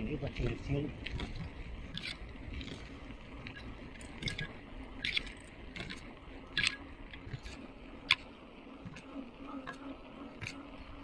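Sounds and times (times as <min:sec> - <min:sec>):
bicycle clicks and rattles: 0:00.0 - 0:09.8
bicycle tyres rumbling: 0:00.0 - 0:11.0.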